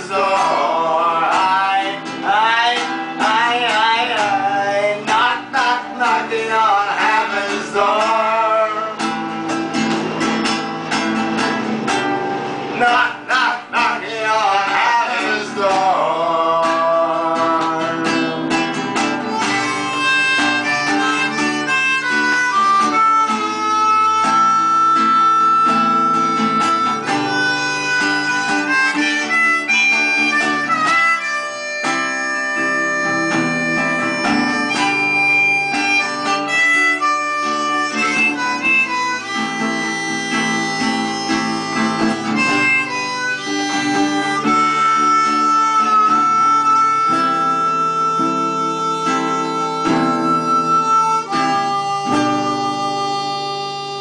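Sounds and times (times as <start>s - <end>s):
harmonica melody: 0.0s - 54.0s
strummed acoustic guitar: 0.0s - 54.0s.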